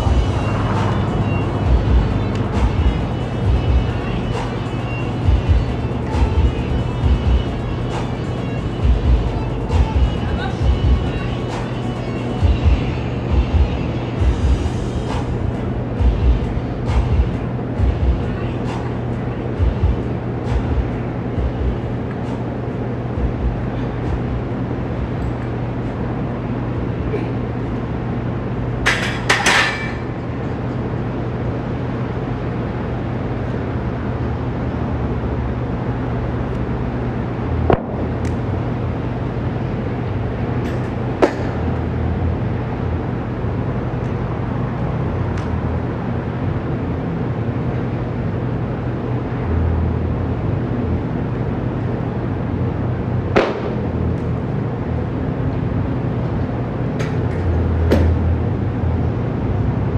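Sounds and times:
steady droning hum: 0.0s - 59.9s
barbell plates clanking: 28.9s - 30.1s.

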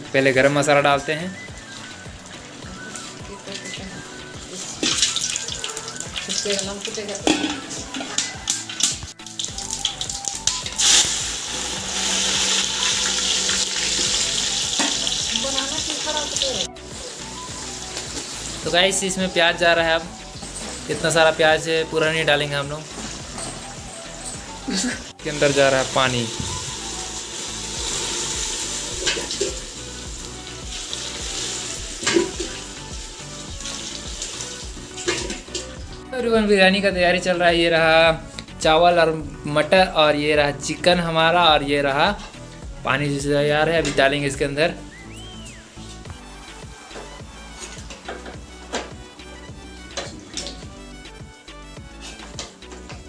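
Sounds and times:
onions sizzling in hot oil: 1.6s - 19.7s, 22.5s - 23.4s, 24.7s - 36.0s.

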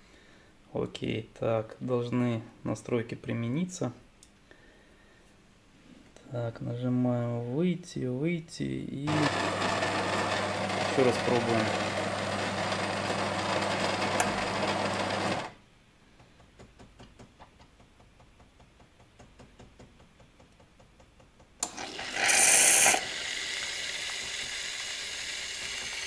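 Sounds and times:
milk frother hissing: 9.1s - 15.5s, 21.6s - 26.0s
coffee grinder humming: 9.1s - 15.6s, 21.6s - 26.0s.

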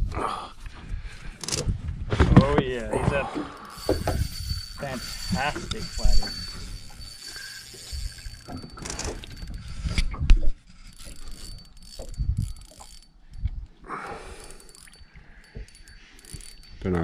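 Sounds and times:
fishing reel clicking and whirring: 1.4s - 1.6s, 3.6s - 13.6s, 14.2s - 17.0s.

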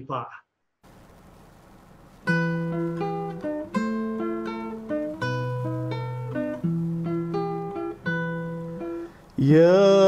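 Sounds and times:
acoustic guitar playing a hymn: 2.2s - 10.0s.

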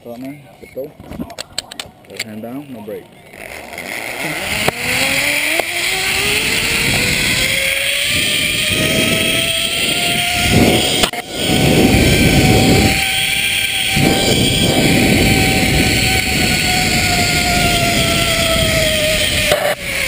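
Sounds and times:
pulley wheels whining on cable: 2.5s - 20.0s
wind rushing on microphone: 4.4s - 20.0s.

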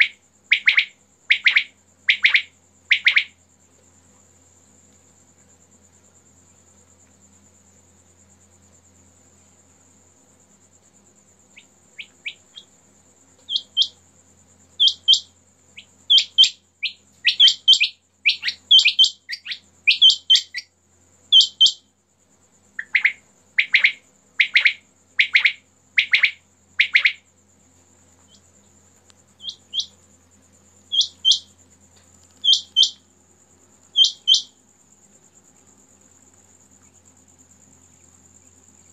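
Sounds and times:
quail calling double notes: 0.0s - 3.3s, 34.0s - 34.5s
lower fuller bird calls: 0.0s - 3.4s, 13.4s - 14.0s, 14.8s - 20.7s, 21.3s - 21.8s, 22.8s - 27.2s, 29.4s - 30.0s, 30.9s - 31.5s, 32.4s - 33.0s, 33.9s - 34.6s.

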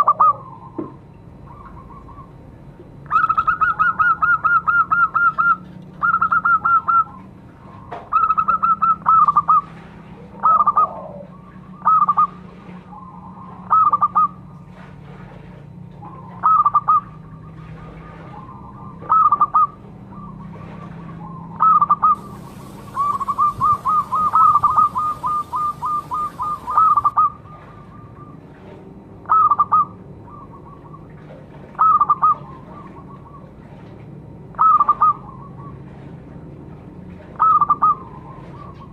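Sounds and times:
dove cooing: 0.0s - 0.6s, 10.4s - 12.3s, 21.6s - 27.5s.

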